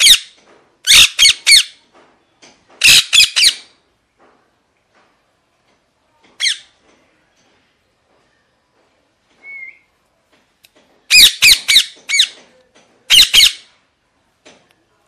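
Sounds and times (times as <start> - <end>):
parakeet squawking: 0.0 - 1.8, 2.8 - 3.7, 6.4 - 6.7, 11.1 - 12.4, 13.1 - 13.7
faint short whistle: 9.4 - 9.9.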